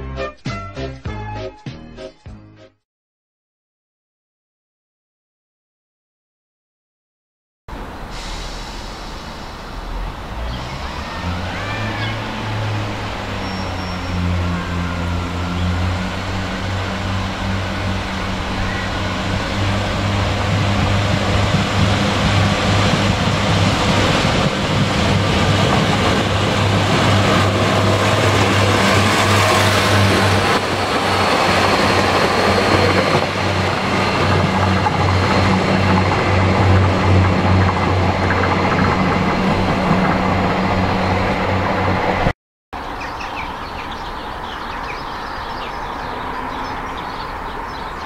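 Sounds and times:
diesel train engine drone: 0:07.7 - 0:42.9.

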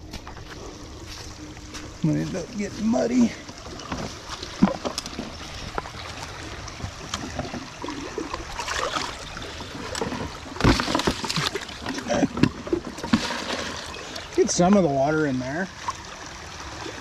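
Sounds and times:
creek water running: 0:00.0 - 0:17.0
bucket filling with gurgling splash: 0:02.2 - 0:17.0.

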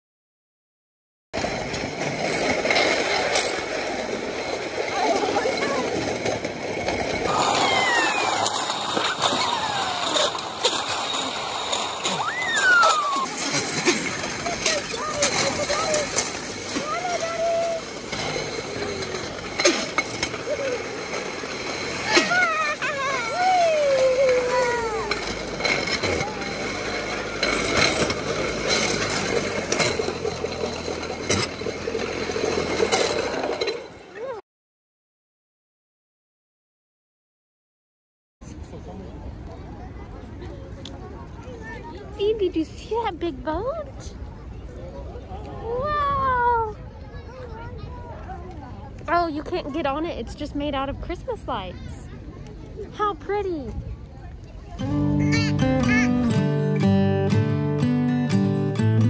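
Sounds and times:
metal roller slide rattling: 0:01.4 - 0:34.4
sharp clicks from rollers: 0:01.4 - 0:34.4
thin falling tones: 0:07.3 - 0:13.5.

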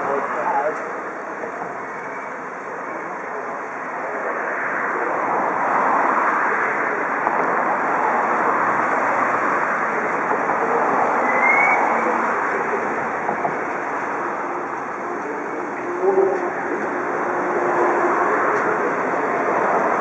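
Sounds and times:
crowd chatter: 0:07.9 - 0:20.0.

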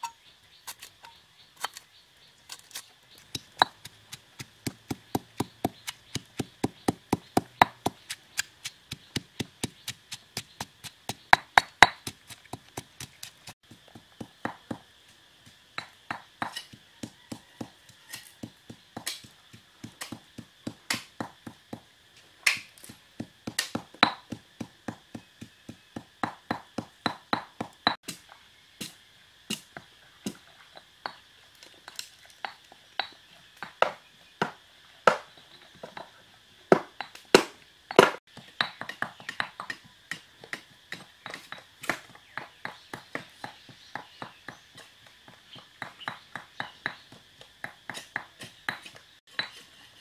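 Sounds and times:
pestle pounding in stone mortar: 0:03.2 - 0:14.9, 0:15.8 - 0:21.9, 0:22.8 - 0:28.2, 0:36.7 - 0:44.9, 0:45.6 - 0:49.6.

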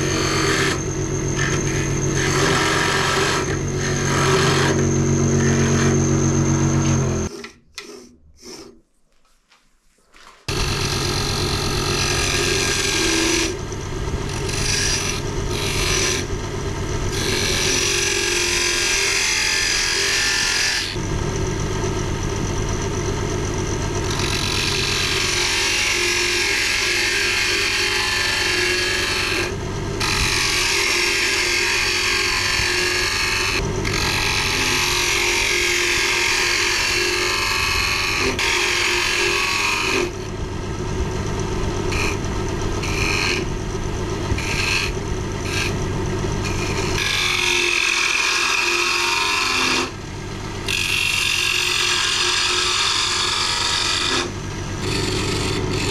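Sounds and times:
lathe motor humming: 0:00.0 - 0:07.9, 0:10.5 - 0:55.9
turning tool scraping wood: 0:00.0 - 0:16.4, 0:41.3 - 0:49.9, 0:50.7 - 0:55.9.

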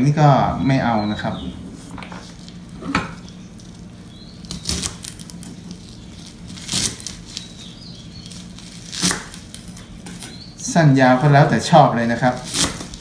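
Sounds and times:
knife cutting chives: 0:04.4 - 0:07.6, 0:08.2 - 0:10.4, 0:12.2 - 0:13.0.

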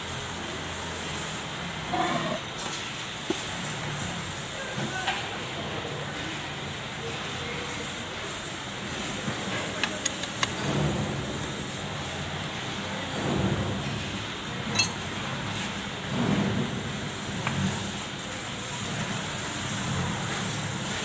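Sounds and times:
metallic clicks and clinks: 0:09.8 - 0:10.6, 0:14.7 - 0:15.1.

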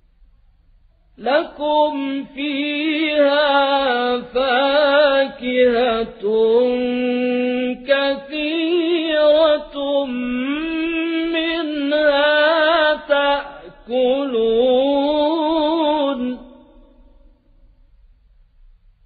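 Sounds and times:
man chanting melodically: 0:01.2 - 0:17.2.

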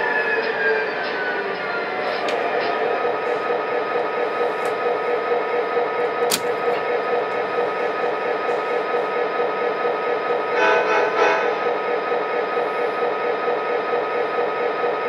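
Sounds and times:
model train running on track: 0:00.0 - 0:15.0
sharp click: 0:06.3 - 0:06.7.

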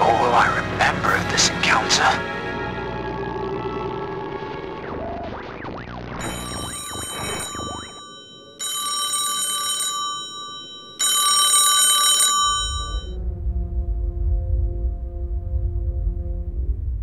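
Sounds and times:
low rumbling music drone: 0:00.0 - 0:05.3, 0:13.1 - 0:17.0
telephone ringing: 0:06.2 - 0:13.2.

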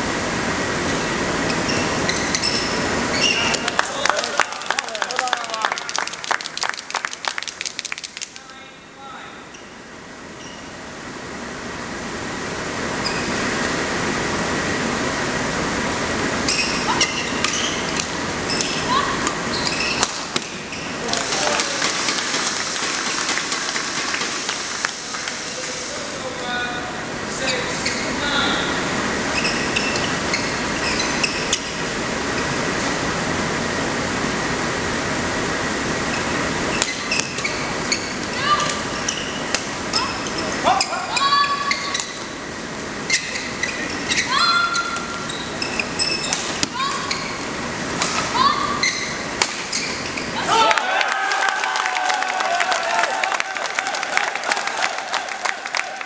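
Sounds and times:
court shoes squeaking: 0:00.9 - 0:03.8, 0:09.4 - 0:10.8, 0:12.9 - 0:13.6, 0:16.4 - 0:22.4, 0:27.3 - 0:28.6, 0:29.2 - 0:32.9, 0:36.0 - 0:50.5
rackets hitting shuttlecock: 0:17.3 - 0:20.6, 0:49.3 - 0:49.8
racket hitting shuttlecock: 0:49.4 - 0:49.8.

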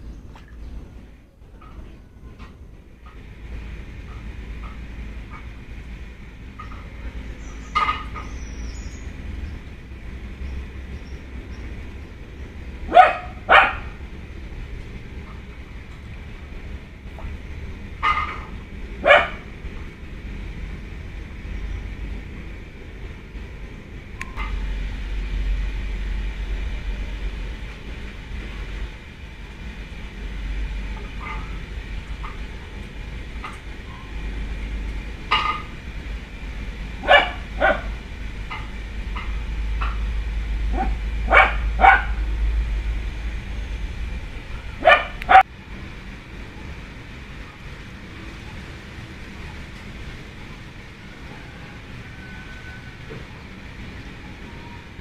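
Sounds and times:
steady low rumble: 0:00.0 - 0:55.0
dog barking: 0:12.9 - 0:14.0, 0:19.0 - 0:19.4, 0:37.0 - 0:38.0, 0:40.7 - 0:42.2, 0:44.8 - 0:45.5.

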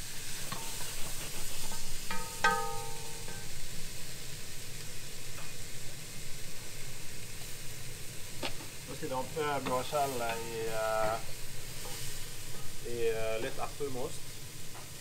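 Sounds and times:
vegetables sizzling in butter: 0:00.0 - 0:15.0
short ringing clink: 0:02.1 - 0:03.5.

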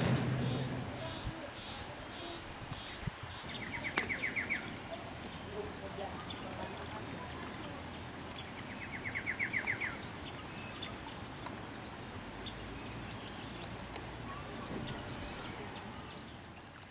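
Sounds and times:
rapid chirps: 0:00.0 - 0:16.8
high insect drone: 0:00.0 - 0:16.9
faint ticks: 0:13.9 - 0:14.1.

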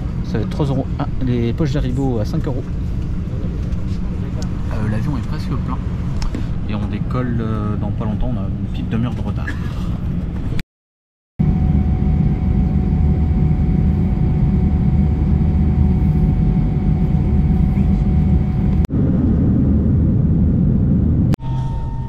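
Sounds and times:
jet engine cabin rumble: 0:00.0 - 0:10.6, 0:11.4 - 0:21.4
faint steady whine: 0:11.4 - 0:19.1.

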